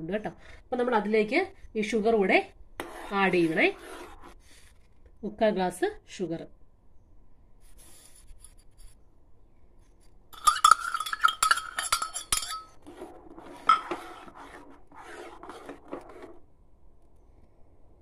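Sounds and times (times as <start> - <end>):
spoon scraping pan: 2.8 - 4.6, 10.4 - 16.4.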